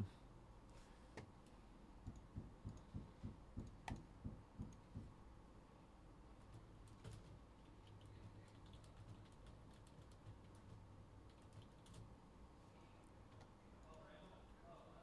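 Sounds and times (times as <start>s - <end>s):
typing on computer keyboard: 6.4s - 12.1s.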